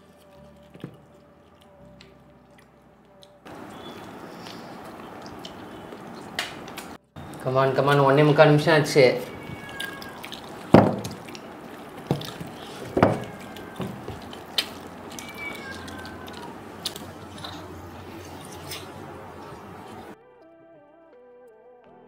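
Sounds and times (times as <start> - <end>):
background music: 0.0 - 3.9, 20.2 - 22.0
wet tearing and chewing: 0.0 - 7.4, 9.2 - 20.2
sharp mouth smacks and clicks: 2.0 - 7.0, 14.2 - 17.6.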